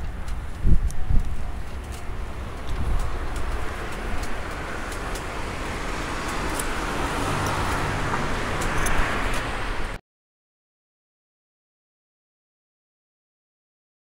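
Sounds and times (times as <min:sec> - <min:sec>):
road traffic noise: 0:00.0 - 0:10.0
vehicle engine hum: 0:00.0 - 0:10.0.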